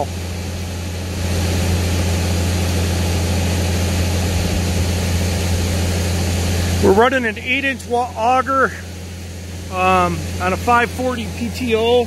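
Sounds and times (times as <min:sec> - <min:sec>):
tractor engine hum: 0:00.0 - 0:12.0.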